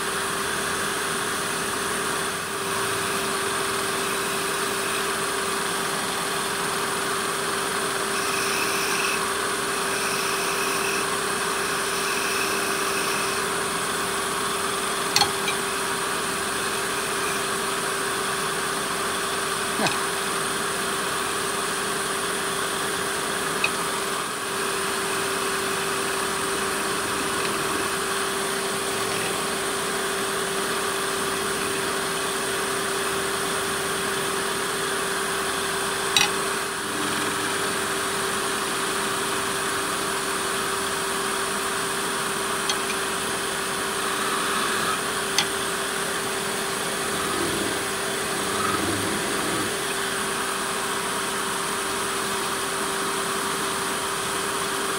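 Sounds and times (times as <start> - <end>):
wood lathe humming: 0.1 - 54.9
lathe knife sharp ticks: 8.2 - 9.2, 15.1 - 15.7, 19.8 - 20.1, 23.4 - 24.0, 25.8 - 28.3, 42.6 - 43.1.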